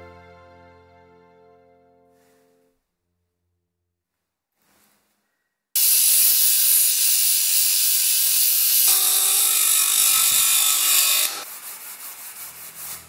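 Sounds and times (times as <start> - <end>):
disc sander grinding metal: 5.8 - 11.5.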